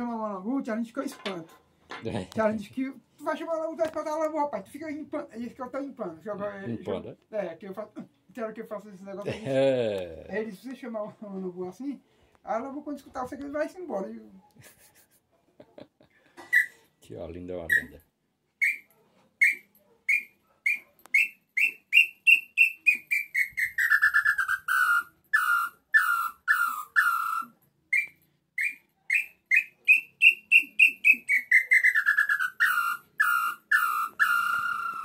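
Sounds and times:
whistled bird call: 16.5 - 16.8, 18.6 - 35.0.

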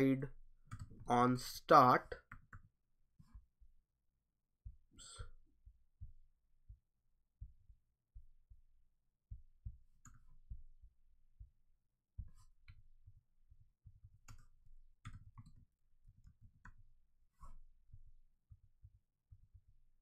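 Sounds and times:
keyboard and mouse clicks: 0.7 - 1.0, 14.1 - 16.8
soft low thuds: 4.6 - 14.2.

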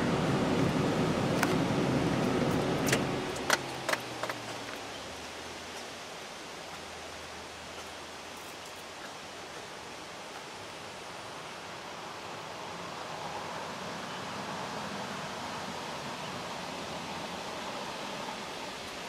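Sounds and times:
vehicle engine driving off: 0.0 - 5.7
quiet outdoor ambience: 0.0 - 19.0.

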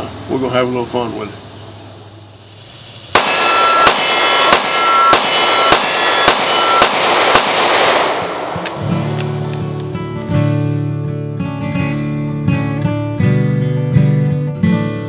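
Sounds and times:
pistol shots: 3.1 - 10.1
metallic ring: 3.2 - 7.0.

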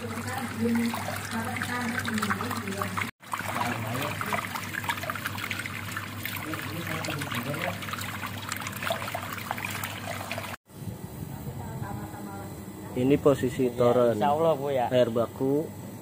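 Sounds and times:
water running and trickling: 0.0 - 10.6
small water splashes: 0.0 - 10.7.

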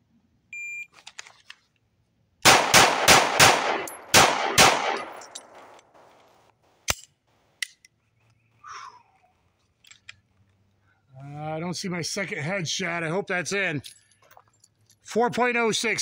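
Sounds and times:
pistol shots: 2.4 - 6.1.

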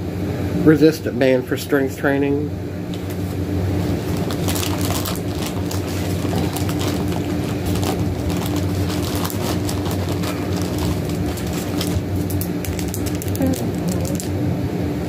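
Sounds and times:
steady low hum: 0.0 - 15.0
plastic package crinkling: 3.9 - 14.4.

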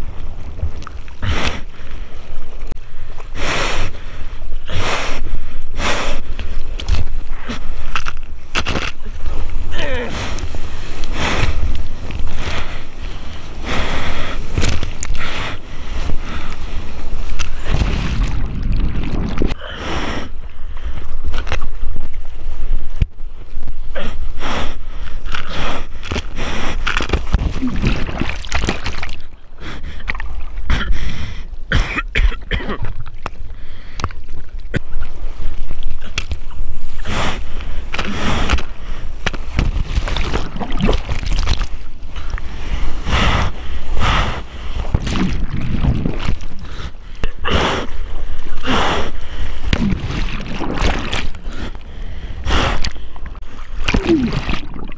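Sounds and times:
low rumble of moving water: 0.0 - 54.9
water splashing at microphone: 8.5 - 19.6, 26.9 - 29.4, 37.9 - 42.5, 44.8 - 46.9, 49.3 - 51.9, 52.8 - 54.9.

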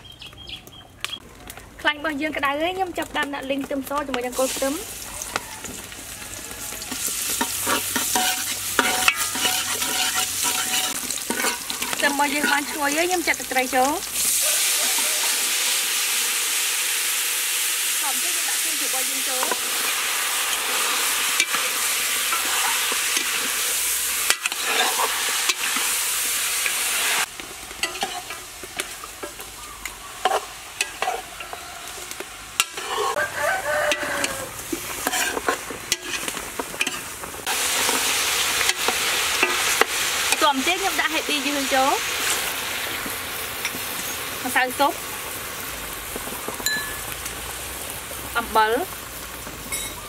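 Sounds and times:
oil sizzling in a wok: 2.2 - 50.0
metal ladle scraping pan: 6.9 - 13.2, 19.3 - 29.5, 30.2 - 40.5.

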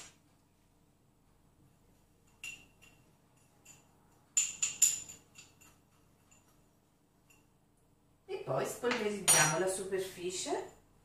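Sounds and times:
metal spoon clinking ceramic bowl: 2.3 - 6.6.

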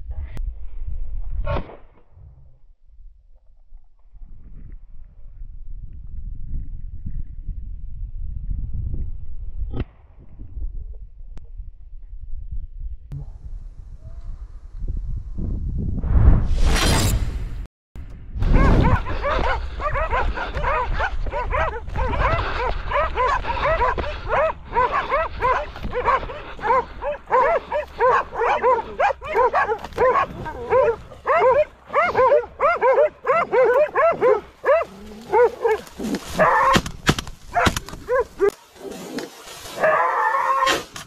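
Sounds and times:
dogs barking and baying: 18.6 - 36.8, 37.5 - 38.6.

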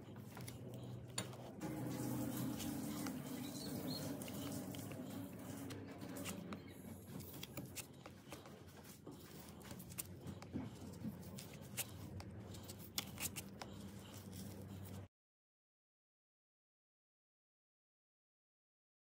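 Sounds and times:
carving tool scraping wood: 0.0 - 15.1
steady low hum: 0.0 - 15.1.

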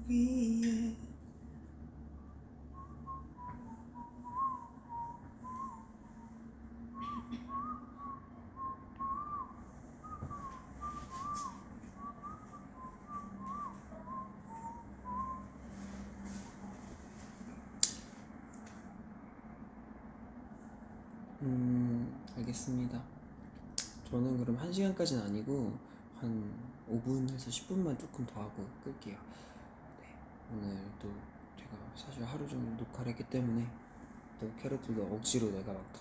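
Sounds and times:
person whistling a tune: 2.2 - 16.4
sharp click: 17.8 - 18.1.

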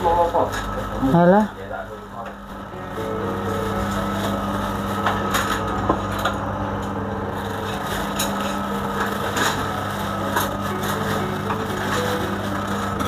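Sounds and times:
steady low hum: 0.0 - 13.0
plastic bag crinkling: 7.3 - 13.0.

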